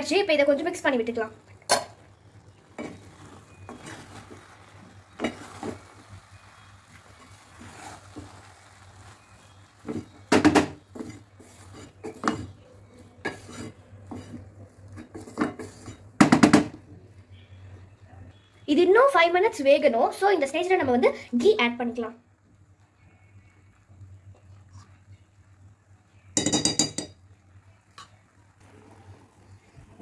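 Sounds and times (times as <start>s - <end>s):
wooden spatula scraping rice in pot: 2.7s - 16.2s.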